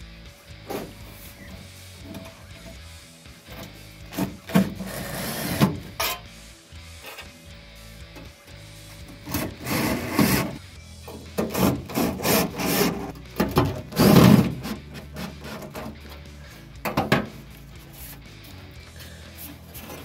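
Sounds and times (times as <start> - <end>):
sheet steel scraping: 3.5 - 6.3, 9.2 - 16.2.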